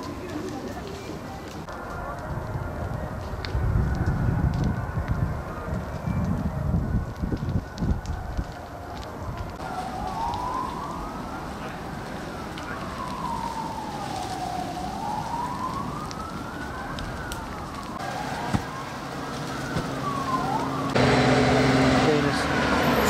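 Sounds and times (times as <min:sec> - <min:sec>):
siren wailing: 0:01.4 - 0:23.0
truck engine humming: 0:15.0 - 0:23.0.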